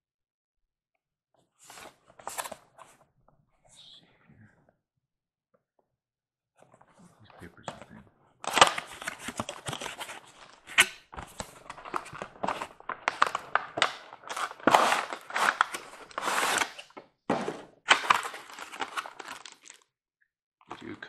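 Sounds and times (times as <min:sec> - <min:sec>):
cardboard packaging knocks and scrapes: 0:14.3 - 0:18.9.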